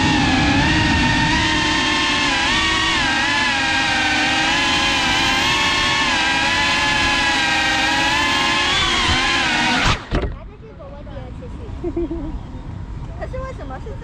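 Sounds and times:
racing drone motors whining: 0.0s - 10.4s.

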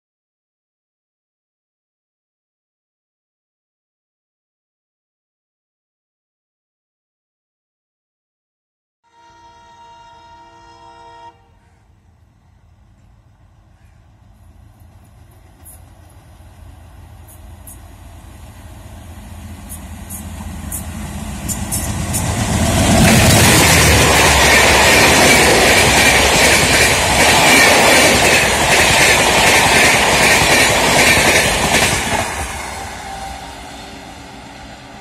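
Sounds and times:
diesel locomotive passing: 9.1s - 35.0s.

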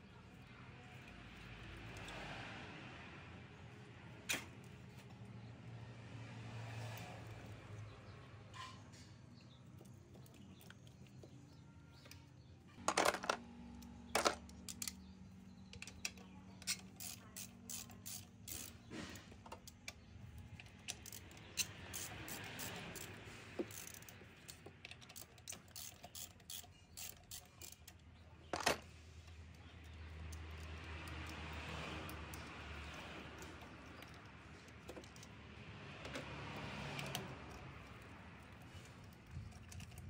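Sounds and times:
ratchet wrench clicking: 14.3s - 15.1s, 15.7s - 28.1s, 29.2s - 40.0s.

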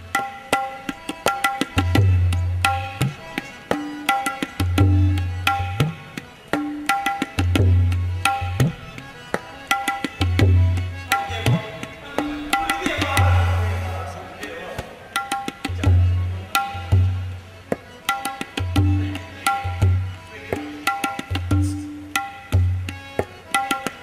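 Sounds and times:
ringing treble drum strokes: 0.1s - 14.2s
tabla bass stroke gliding upward: 11.5s - 14.3s.

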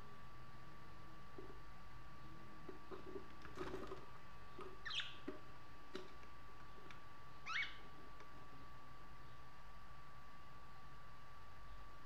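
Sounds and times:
budgerigar chirping: 4.8s - 5.2s, 7.4s - 7.8s.

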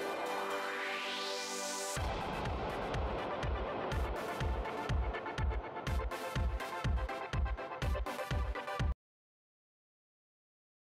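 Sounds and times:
electronic dance music: 0.0s - 9.0s
kick drum beating: 2.0s - 9.0s.

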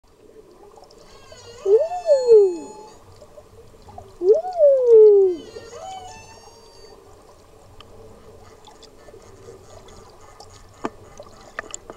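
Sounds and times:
whale song underwater: 0.6s - 7.2s.

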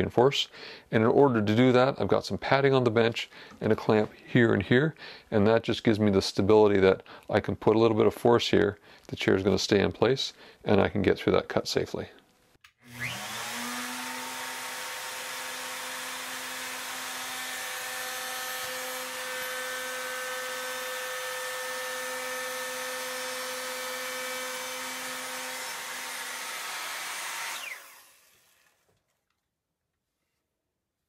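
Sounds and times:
router motor winding down: 12.8s - 28.9s
router whining cutting wood: 12.8s - 29.0s.

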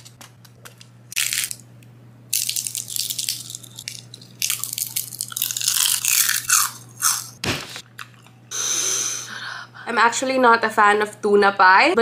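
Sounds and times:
fried rolls crunching and crackling: 0.0s - 1.6s, 2.3s - 7.4s
low steady hum: 0.0s - 12.0s.

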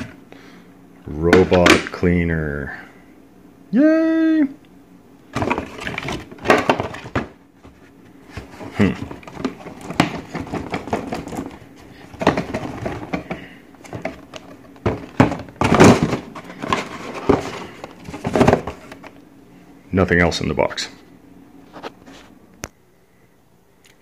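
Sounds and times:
cardboard box rustles and scrapes: 5.4s - 19.1s.

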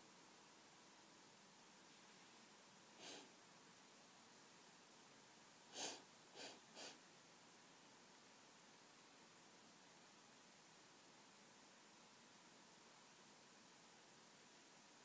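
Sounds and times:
person breathing: 3.0s - 3.3s, 5.7s - 7.0s.

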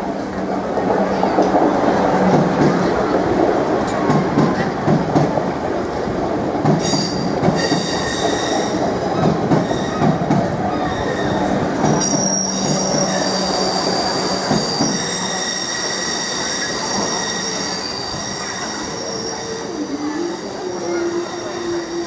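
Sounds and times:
train wheels rumbling: 0.0s - 22.0s
train wheels squealing on rail: 6.8s - 22.0s.

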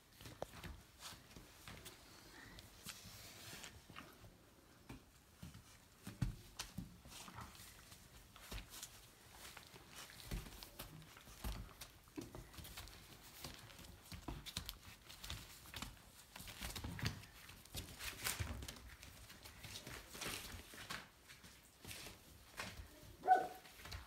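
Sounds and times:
puppies thumping and scuffing: 4.8s - 24.0s
paper rustling: 6.6s - 24.0s.

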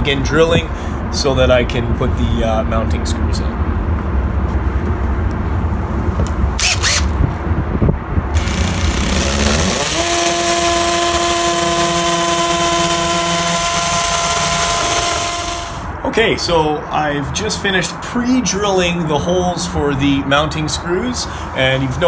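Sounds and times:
cordless drill drilling into brick: 6.6s - 7.2s, 8.4s - 15.9s.

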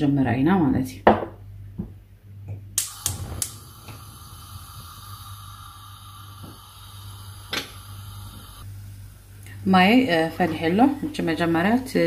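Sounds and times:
pan hissing on hob: 2.8s - 8.7s.

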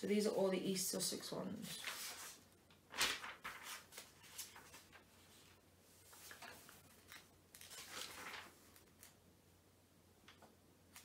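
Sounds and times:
book pages turning: 1.8s - 9.2s.

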